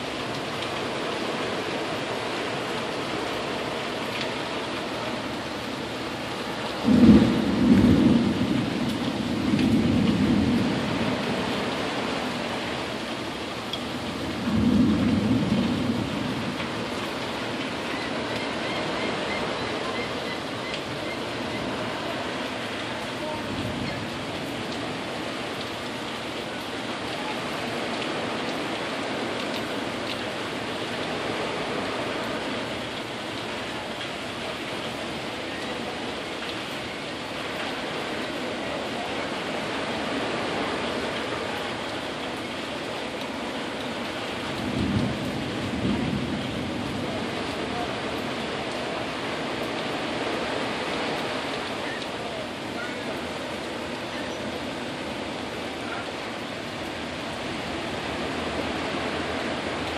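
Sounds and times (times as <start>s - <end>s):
rain hissing: 0.0s - 59.9s
thunder rumbling: 6.5s - 13.0s, 14.0s - 25.7s, 44.3s - 50.0s.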